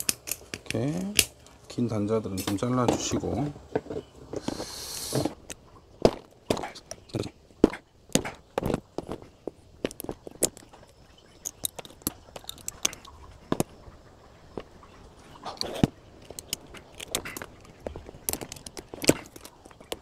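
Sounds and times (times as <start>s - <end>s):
sharp clicks and metal snaps: 0.0s - 1.4s.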